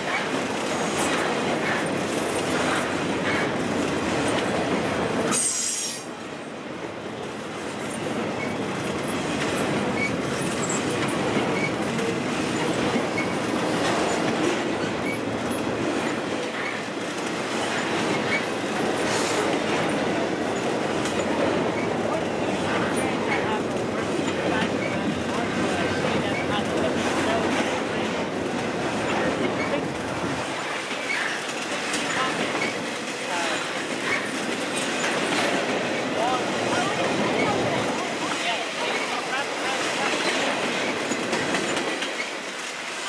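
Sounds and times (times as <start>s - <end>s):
train wheels rumbling over rail joints: 0.0s - 6.3s, 6.9s - 43.0s
high wheel squeal: 5.3s - 6.1s.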